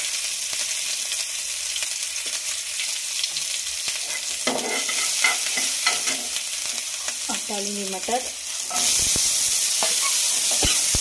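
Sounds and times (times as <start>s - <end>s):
oil sizzling in a frying pan: 0.0s - 11.0s
spatula scraping a pan: 4.0s - 6.4s, 8.6s - 11.0s.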